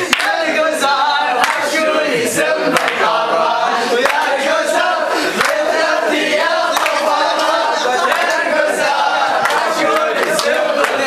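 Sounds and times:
sharp hand claps: 0.0s - 0.4s, 1.4s - 1.7s, 2.7s - 3.0s, 4.0s - 4.3s, 5.4s - 5.7s, 6.7s - 8.4s, 9.4s - 11.0s
men singing in chorus: 0.0s - 11.0s.

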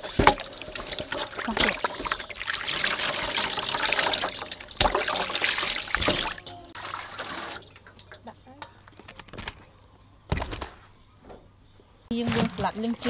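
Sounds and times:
water pouring and splashing: 0.0s - 8.3s.

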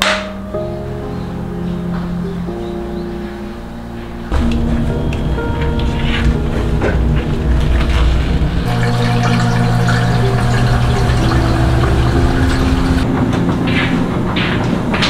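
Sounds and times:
washing machine hum: 4.3s - 15.0s.

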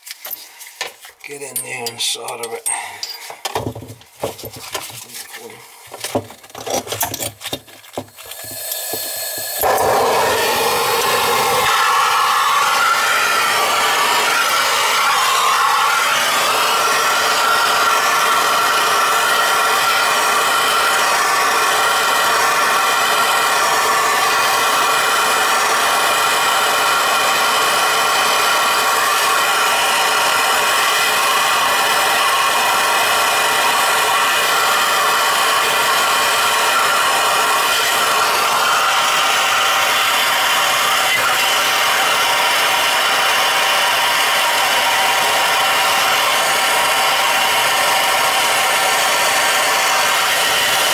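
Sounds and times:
torch flame hissing: 8.2s - 27.8s.

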